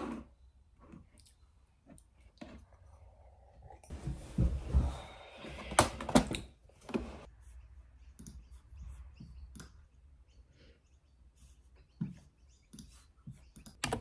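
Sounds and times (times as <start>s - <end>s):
keyboard and mouse clicks: 9.3s - 9.8s, 12.0s - 14.0s.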